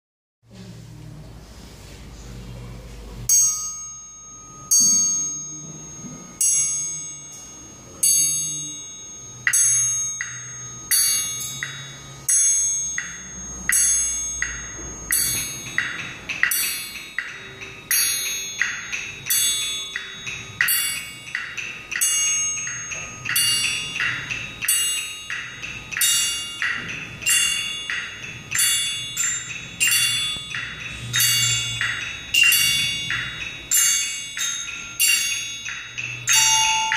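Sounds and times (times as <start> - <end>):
triangle ringing: 3.3 - 36.9.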